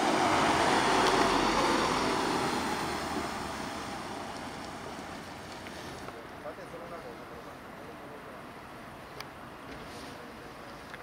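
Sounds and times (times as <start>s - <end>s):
vehicle driving past: 0.0s - 4.9s.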